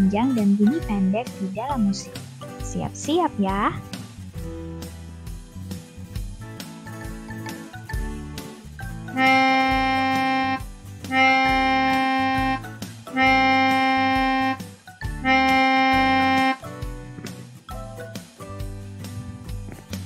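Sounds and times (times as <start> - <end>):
soft background music: 0.0 - 20.0
long reedy instrument notes: 9.1 - 16.7.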